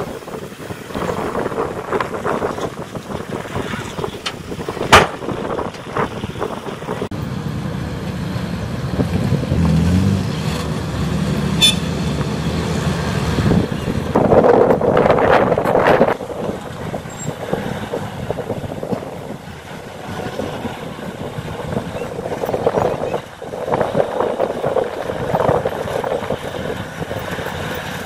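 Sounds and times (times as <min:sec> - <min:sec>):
soil and stones sliding and clattering: 0:00.0 - 0:06.9
dump truck engine running: 0:00.0 - 0:28.0.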